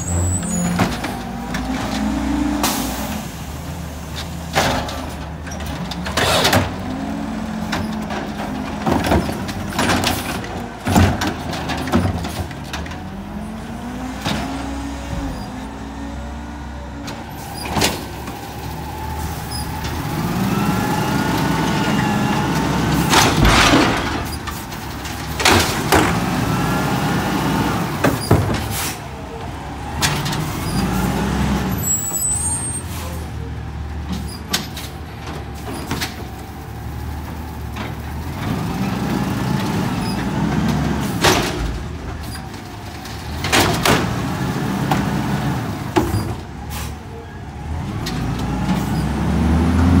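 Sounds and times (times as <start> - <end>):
trash bins banging against truck: 0.0 - 3.2, 4.0 - 13.4, 19.4 - 32.1, 34.0 - 47.0
garbage truck engine revving: 0.0 - 50.0.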